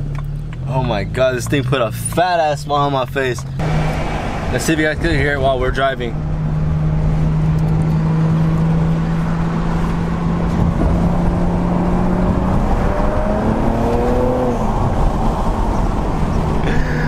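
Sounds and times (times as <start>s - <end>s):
car engine drone: 0.0s - 17.0s
road noise: 0.0s - 17.0s.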